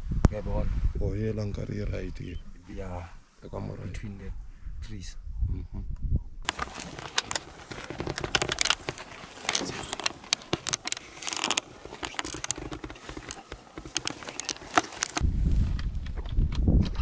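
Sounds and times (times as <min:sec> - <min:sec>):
sharp clicks: 0:06.5 - 0:15.2
rustling and crackling: 0:06.5 - 0:16.2.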